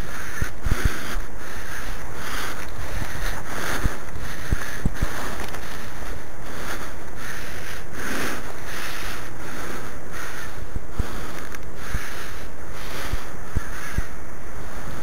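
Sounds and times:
wind buffeting microphone: 0.0 - 7.2.

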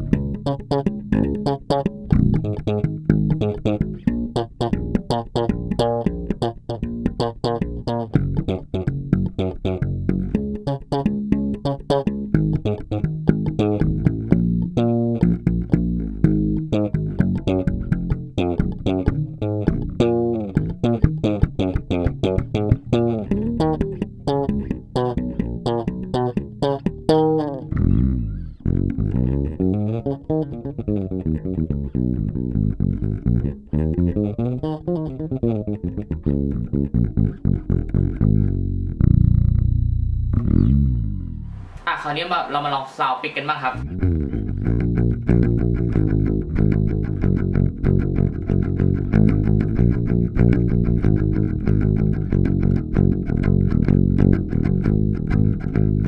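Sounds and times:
bass guitar plucked notes: 0.0 - 41.9, 43.8 - 56.0.

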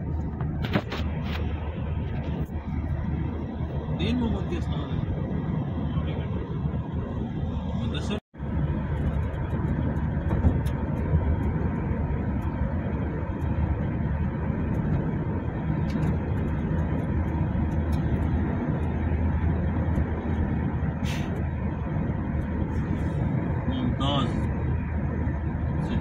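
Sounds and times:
car road and engine noise: 0.0 - 26.0
brief hiss: 21.0 - 21.4.

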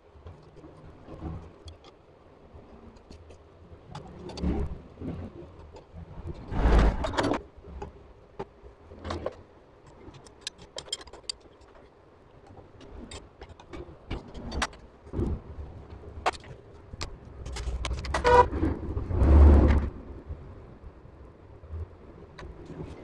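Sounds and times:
metal tools clinking and knocking: 10.1 - 11.8
spanner working a nut: 10.1 - 11.8.

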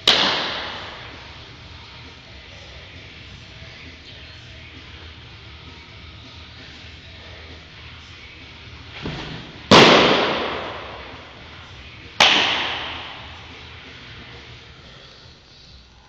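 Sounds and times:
baseball smacking into glove: 9.0 - 11.4, 12.2 - 13.5.

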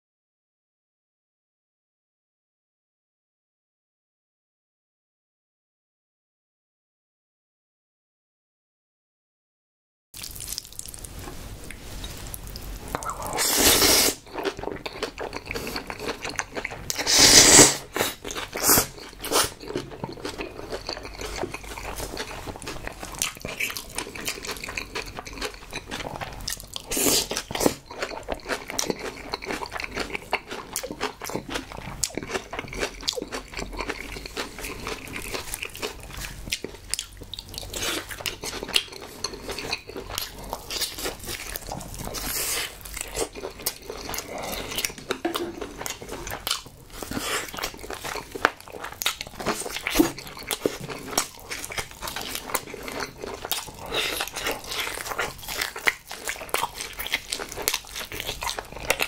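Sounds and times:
wet chewing: 10.2 - 59.0
slurping noodles: 12.9 - 14.5, 16.9 - 19.6, 26.8 - 27.8.

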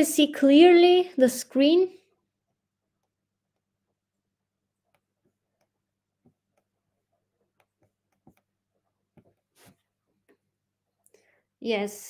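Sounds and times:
faint irregular clicks: 4.8 - 9.5.

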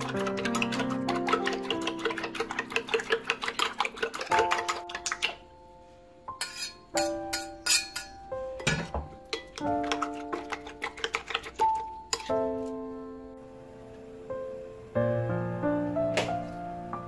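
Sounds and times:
spoon clinking in a ceramic bowl: 0.0 - 5.4, 6.3 - 12.3
background music: 0.0 - 17.0.

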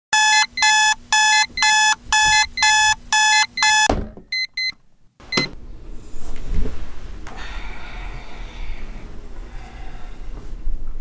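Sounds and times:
alarm clock beeping: 0.1 - 4.7.

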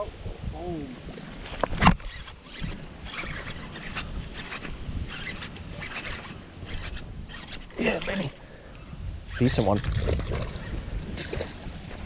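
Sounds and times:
fishing reel whirring: 2.0 - 8.3.

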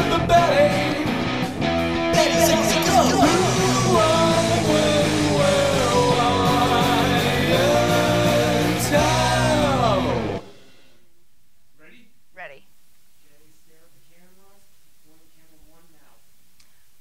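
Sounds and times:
song with singing voice: 0.0 - 10.5.

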